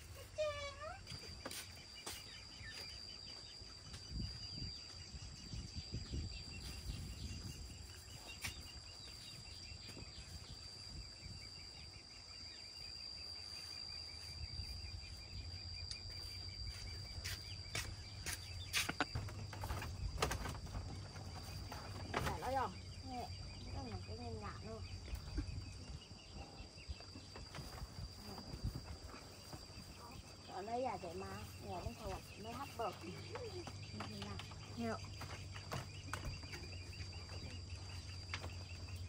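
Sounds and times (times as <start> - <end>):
insect high-pitched trill: 0.0 - 39.0.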